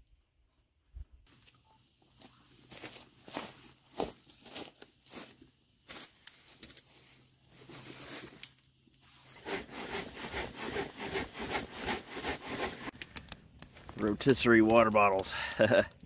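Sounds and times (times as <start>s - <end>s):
hand saw rasping through log: 9.3s - 12.9s.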